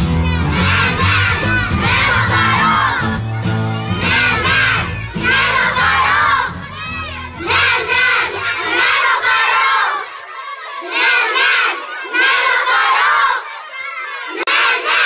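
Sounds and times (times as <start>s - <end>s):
backing music: 0.0s - 8.7s
children shouting together: 0.0s - 15.0s.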